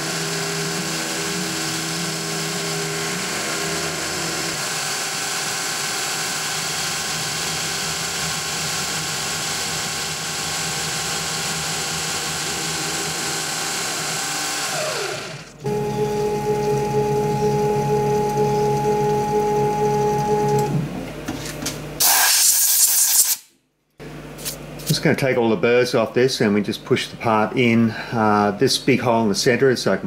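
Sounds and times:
milling machine cutting plastic: 0:00.0 - 0:20.9
spindle whining: 0:12.2 - 0:21.1
held music tones: 0:15.6 - 0:21.0.

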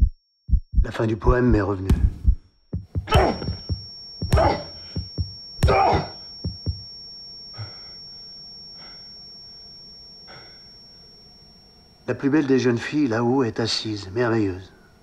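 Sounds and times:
short low knocks: 0:01.9 - 0:06.8
faint high whine: 0:03.0 - 0:15.0.

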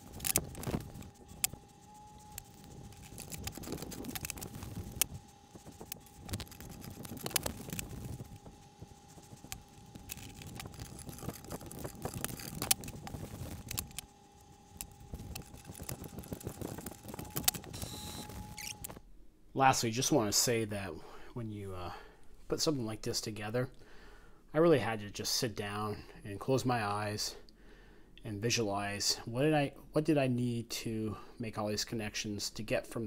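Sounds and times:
handling noise: 0:00.0 - 0:19.1
faint high hum: 0:00.0 - 0:33.0.

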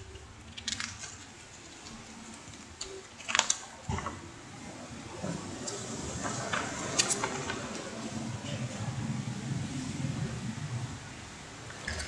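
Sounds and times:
paper crackling: 0:00.0 - 0:04.1, 0:05.7 - 0:08.0.

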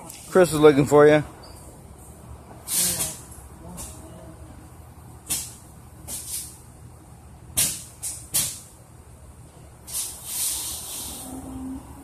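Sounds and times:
steady low hum: 0:00.0 - 0:12.0
short bursts of hiss: 0:02.7 - 0:03.2, 0:09.9 - 0:11.4.

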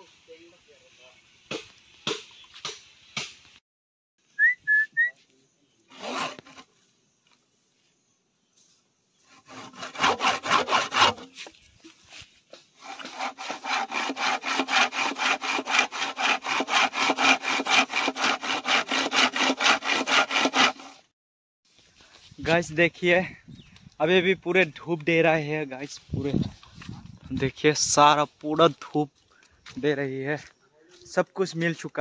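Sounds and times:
hand saw cutting bamboo: 0:05.9 - 0:06.7, 0:09.3 - 0:11.5, 0:12.8 - 0:21.1.

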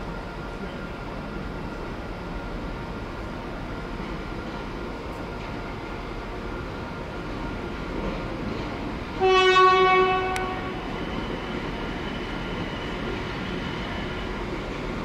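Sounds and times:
train running noise: 0:00.0 - 0:15.0
train horn blast: 0:09.2 - 0:11.0.

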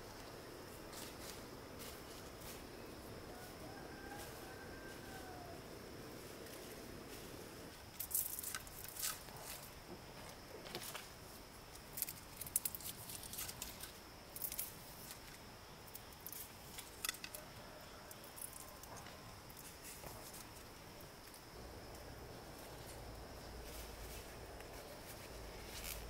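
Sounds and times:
faint steady hiss: 0:00.0 - 0:26.0
light clicks and crackles: 0:11.7 - 0:17.4.

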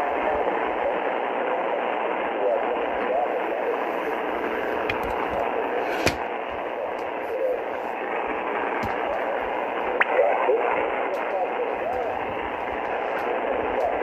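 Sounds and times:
shortwave radio static and hiss: 0:00.0 - 0:14.0
weak radio voice: 0:00.0 - 0:14.0.

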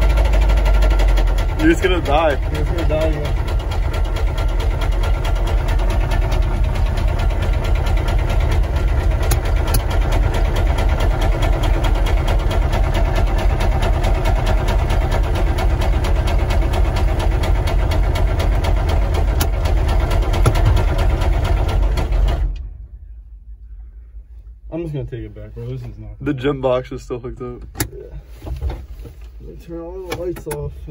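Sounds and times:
diesel engine with rod knock: 0:00.0 - 0:22.9, 0:30.0 - 0:30.8.

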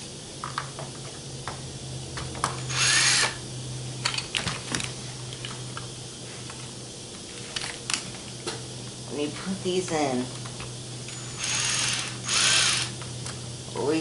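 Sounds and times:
cordless drill spinning: 0:02.7 - 0:03.4, 0:11.1 - 0:13.0.

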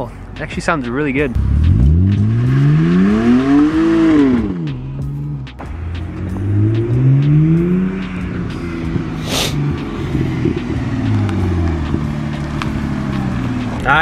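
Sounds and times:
car engine revving: 0:01.2 - 0:14.0
short burst of hiss: 0:09.2 - 0:09.6.

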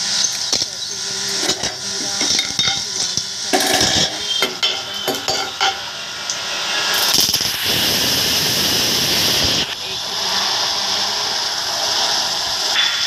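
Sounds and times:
food sizzling in hot oil: 0:00.0 - 0:13.0
metal spoon scraping a pan: 0:00.5 - 0:05.8.

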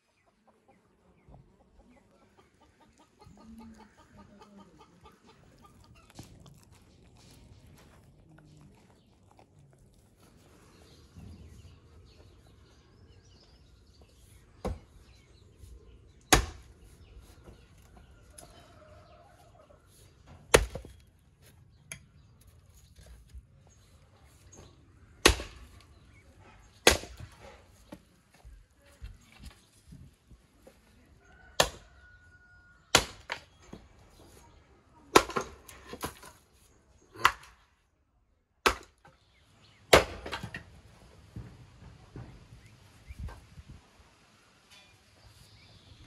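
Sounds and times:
chickens clucking: 0:00.0 - 0:07.4
axe chopping firewood: 0:16.2 - 0:16.9, 0:20.4 - 0:21.0, 0:25.2 - 0:25.9, 0:26.8 - 0:28.0, 0:31.6 - 0:31.9, 0:32.9 - 0:33.8, 0:35.1 - 0:36.4, 0:37.1 - 0:37.7, 0:38.6 - 0:39.2, 0:39.9 - 0:40.7.

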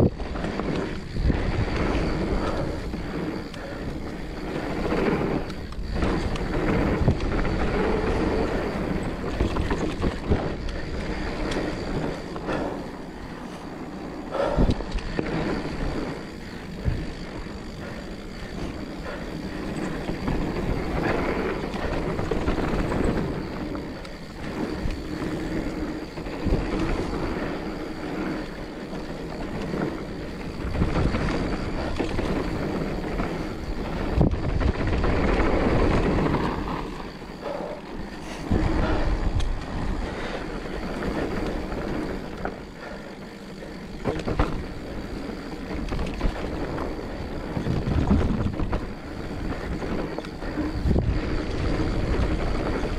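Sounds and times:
bike tyres rolling on dirt: 0:00.0 - 0:52.9
wind on microphone: 0:30.2 - 0:42.3, 0:45.6 - 0:52.9.

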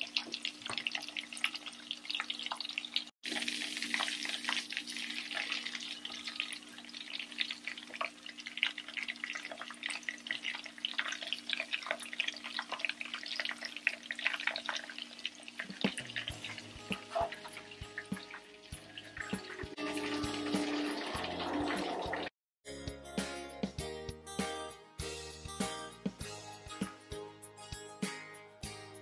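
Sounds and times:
food deep-frying in hot oil: 0:00.0 - 0:22.3.

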